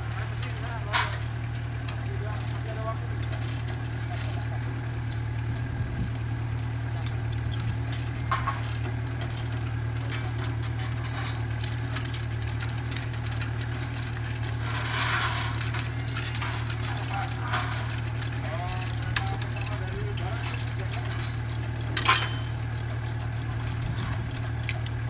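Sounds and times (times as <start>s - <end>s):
diesel engine idling: 0.0s - 25.0s.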